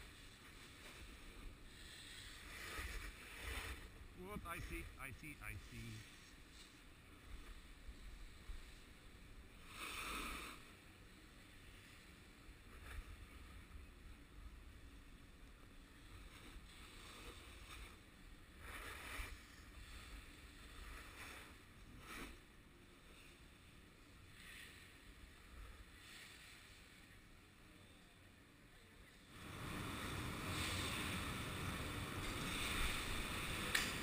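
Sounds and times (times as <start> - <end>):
snowboard scraping snow: 0.0 - 4.6, 9.6 - 10.7, 29.4 - 34.0.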